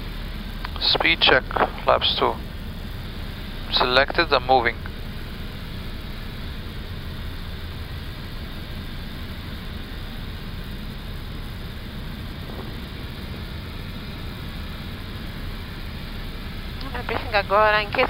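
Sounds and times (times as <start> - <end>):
low hum: 0.0 - 18.0
rush of airflow: 10.5 - 16.8.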